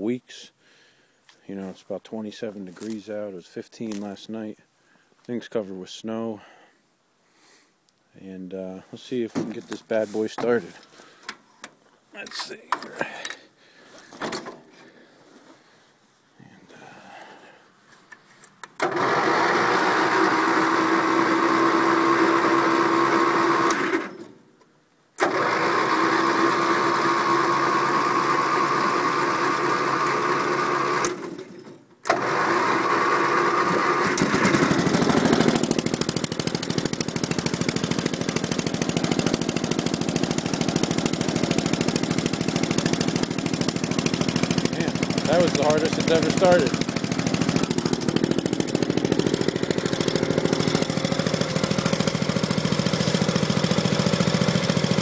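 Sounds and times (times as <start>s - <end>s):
tractor engine running: 18.8s - 24.3s, 25.2s - 55.0s
electric starter cranking engine: 18.8s - 24.4s, 25.2s - 55.0s.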